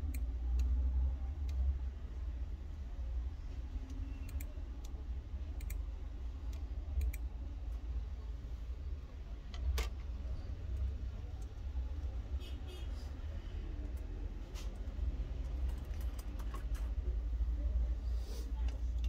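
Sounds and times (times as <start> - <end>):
keyboard and mouse clicks: 5.6 - 5.8, 6.5 - 7.3, 15.4 - 17.0.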